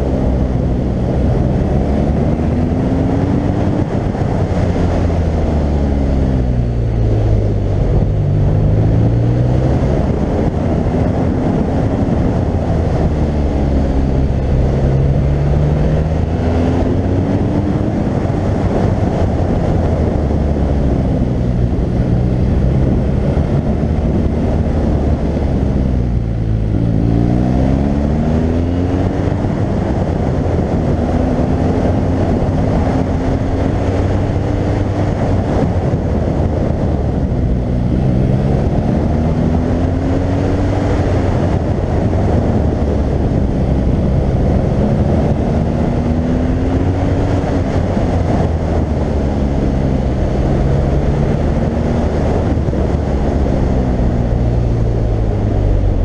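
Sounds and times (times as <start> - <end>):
motorcycle engine: 0.0 - 56.0
wind noise: 0.0 - 56.0.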